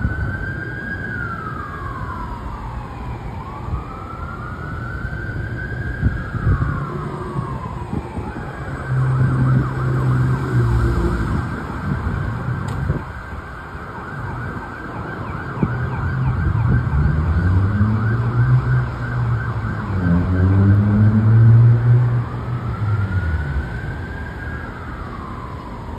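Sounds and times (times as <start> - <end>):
electronic siren yelping: 5.0 - 25.6.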